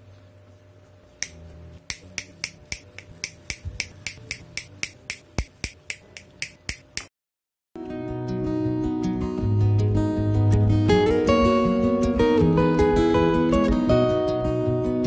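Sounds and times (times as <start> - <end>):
side cutters snipping wires: 1.2 - 7.1.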